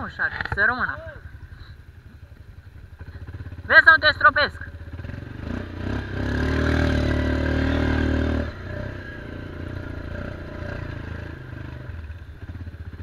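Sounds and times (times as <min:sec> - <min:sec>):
quad engine revving: 0:03.0 - 0:13.0.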